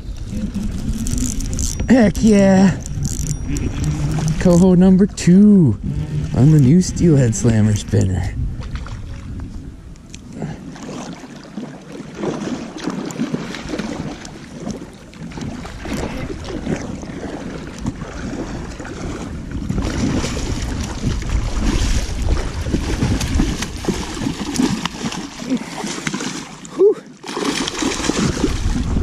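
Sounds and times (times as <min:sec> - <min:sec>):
wind buffeting microphone: 0:00.0 - 0:11.0, 0:13.3 - 0:25.4, 0:27.6 - 0:29.0
fish splashing in water: 0:10.7 - 0:29.0.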